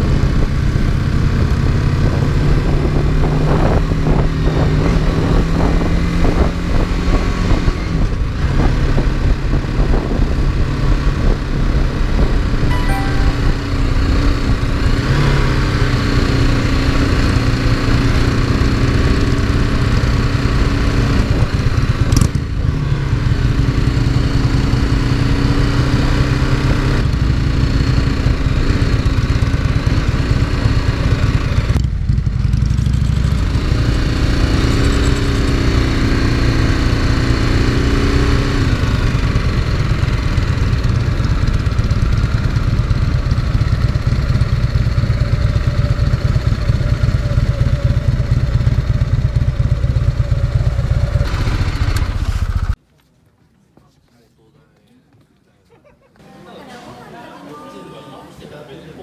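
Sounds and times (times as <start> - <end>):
motorcycle engine running: 13.6 - 52.8.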